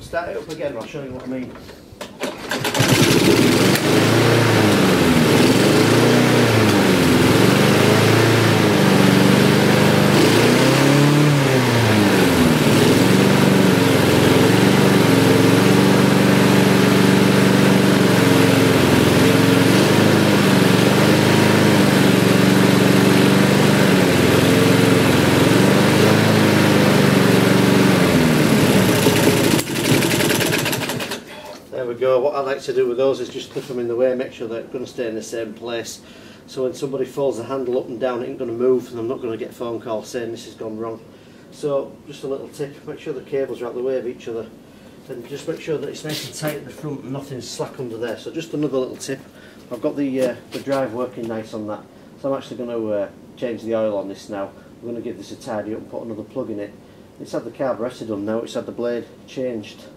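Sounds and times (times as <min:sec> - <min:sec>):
lawn mower engine starting and running: 0:02.0 - 0:31.6.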